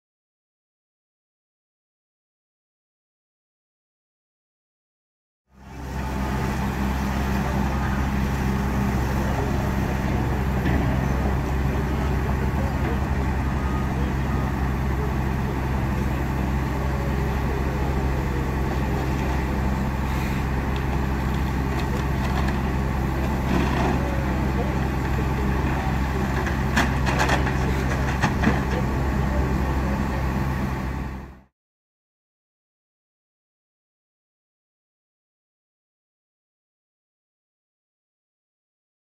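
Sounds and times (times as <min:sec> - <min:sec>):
diesel engine droning: 0:05.5 - 0:31.5.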